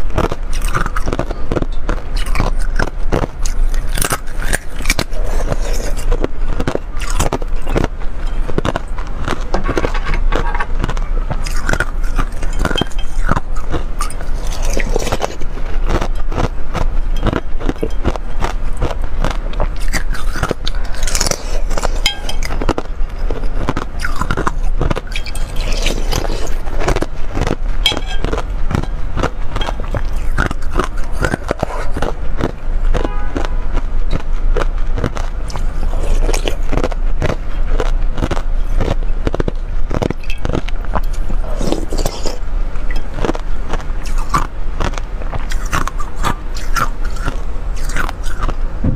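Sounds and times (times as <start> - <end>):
biting and crunching ice: 0.0 - 48.9
metal spoon scraping ice in bowl: 11.4 - 15.5, 19.8 - 22.8, 23.7 - 27.0, 27.8 - 32.1.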